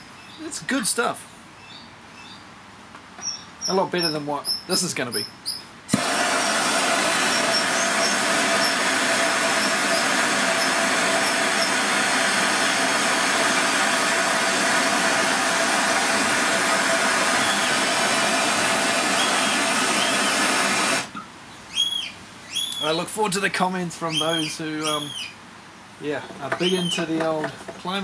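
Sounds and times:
blowtorch flame hissing: 5.9 - 21.1.

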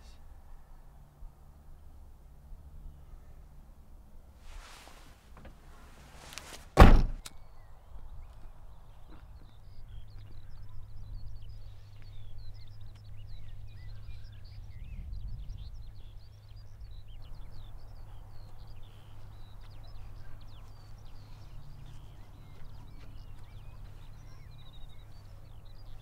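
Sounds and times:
birds chirping and trilling: 7.3 - 26.0
steady low rumble: 9.8 - 26.0.

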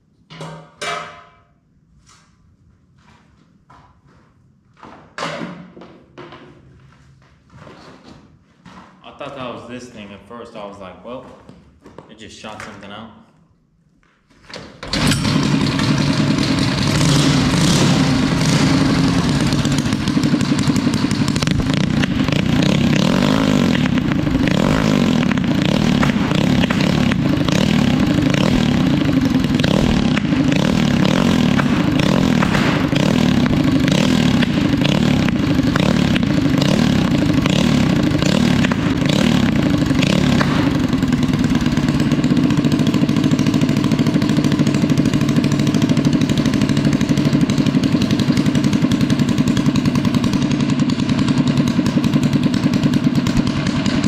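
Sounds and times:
recoil starter pull: 14.5 - 54.0
small engine running: 14.9 - 54.0.

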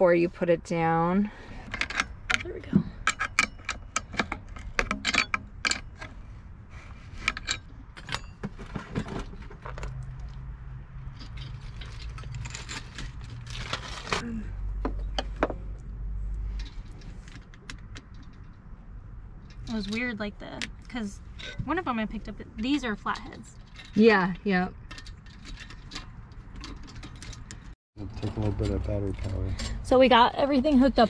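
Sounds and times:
wrench clinking on metal: 1.6 - 6.1.

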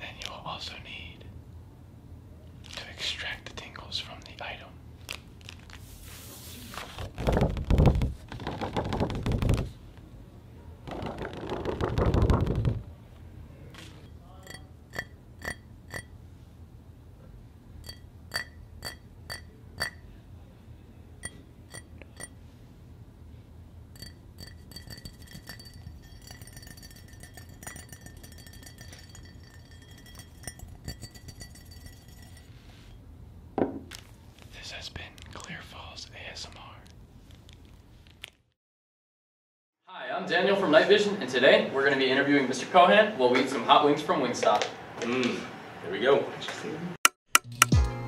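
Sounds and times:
paper rustling: 5.0 - 9.8
spoon clinking in ceramic mug: 14.0 - 16.1, 17.8 - 20.0, 21.2 - 22.4, 24.0 - 32.6.

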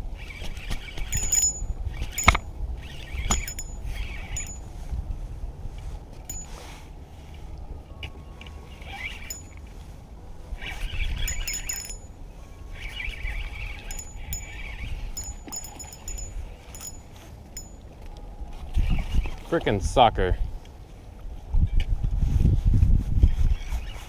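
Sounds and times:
fishing reel whirring: 0.2 - 4.6, 8.7 - 9.6, 10.6 - 12.1, 12.7 - 17.0
small metallic clicks: 0.5 - 4.6, 11.2 - 12.1, 13.8 - 18.2.

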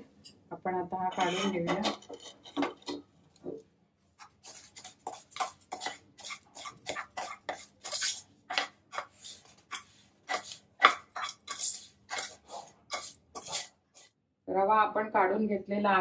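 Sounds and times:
wooden spatula scraping metal pan: 1.0 - 3.0, 4.4 - 14.1.

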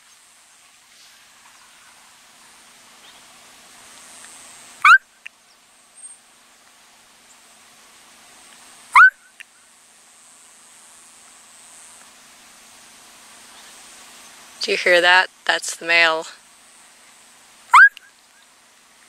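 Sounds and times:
quail call imitation: 4.8 - 5.2, 8.9 - 9.4, 17.7 - 18.1.

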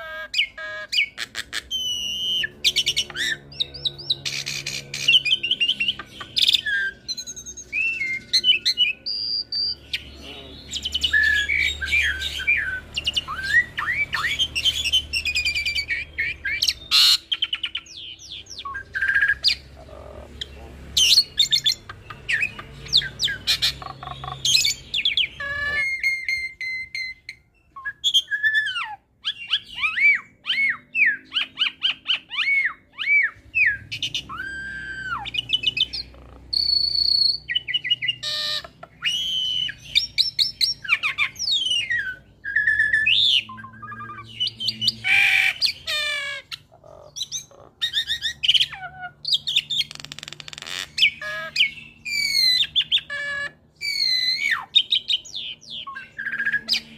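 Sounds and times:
starling singing: 0.0 - 56.9.

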